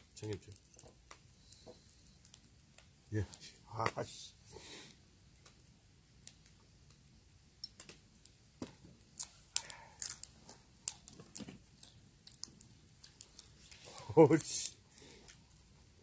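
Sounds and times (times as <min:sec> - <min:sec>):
person chewing: 0:09.2 - 0:14.1, 0:14.8 - 0:15.6.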